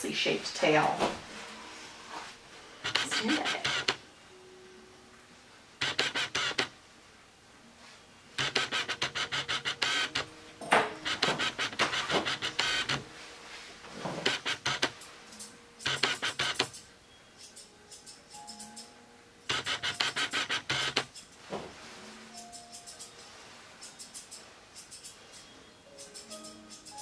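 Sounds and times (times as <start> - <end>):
grooming shears snipping: 2.9 - 4.0, 14.2 - 21.4, 22.3 - 27.0.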